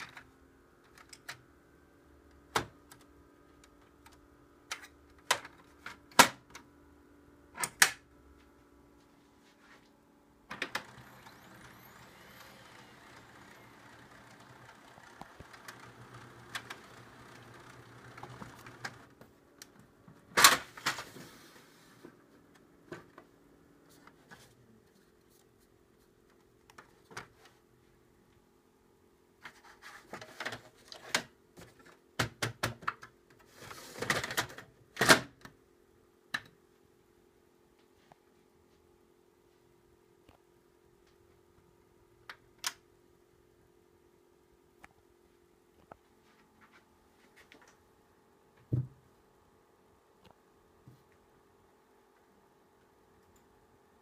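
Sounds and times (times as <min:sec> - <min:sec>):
steady machine hum: 0:00.0 - 0:20.2.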